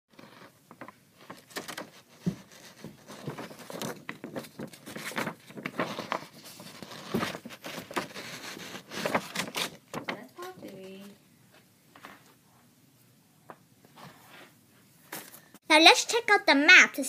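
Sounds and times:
rustling and scraping handling noise: 0.1s - 12.7s, 13.5s - 15.6s.

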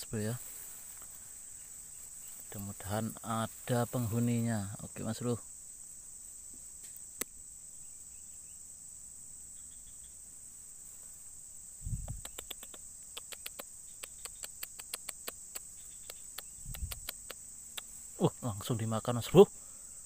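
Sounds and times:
insects chirring: 0.0s - 20.0s
sharp clicks: 12.0s - 17.9s.

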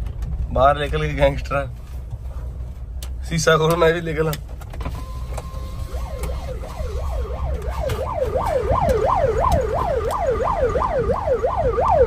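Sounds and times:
vehicle rumbling on dirt track: 0.0s - 12.0s
electronic siren wailing: 5.0s - 12.0s.

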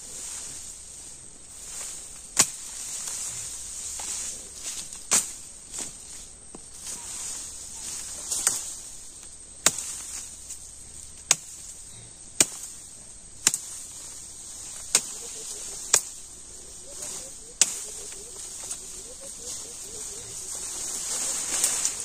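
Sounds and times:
high insect drone: 0.0s - 22.0s
machete chopping: 2.3s - 2.8s, 9.6s - 10.3s, 11.2s - 11.7s, 12.4s - 12.8s, 13.4s - 13.8s, 14.8s - 16.2s, 17.1s - 18.8s.

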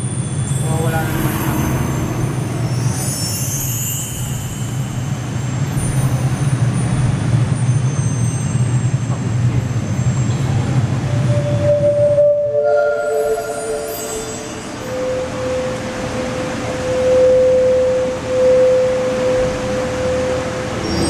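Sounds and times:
deep steady rumble: 0.0s - 12.4s
high hissing whoosh: 0.6s - 5.3s.

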